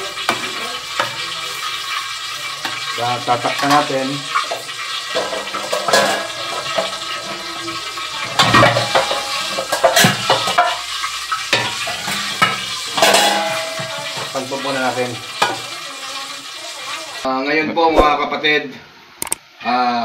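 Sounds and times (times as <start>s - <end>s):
pot sizzling and hissing: 0.0s - 17.3s
cookware knocking: 11.5s - 14.3s.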